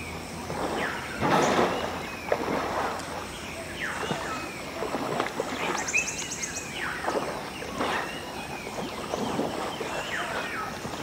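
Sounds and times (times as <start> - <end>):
elephants splashing in water: 0.4 - 11.0
birds whistling and chirping: 3.3 - 4.8, 5.6 - 10.9.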